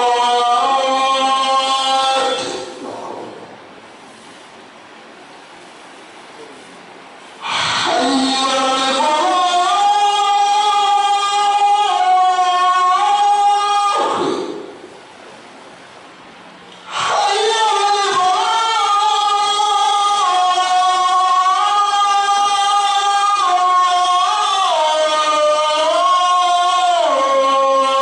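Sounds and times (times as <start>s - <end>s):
person chanting in held notes: 0.0s - 3.5s, 7.4s - 15.0s, 16.8s - 28.0s
low hiss: 0.0s - 28.0s.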